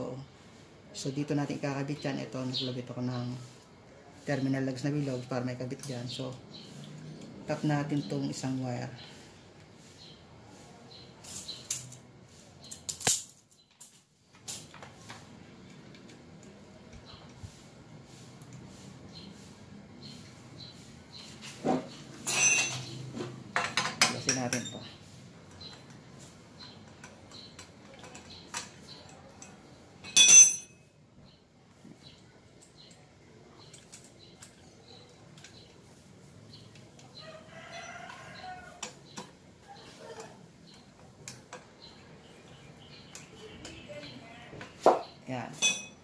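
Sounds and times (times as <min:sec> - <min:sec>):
wires and plastic rustling: 0:10.5 - 0:23.3
metal tool clinking on metal: 0:22.2 - 0:23.0, 0:26.9 - 0:30.9, 0:45.6 - 0:46.0.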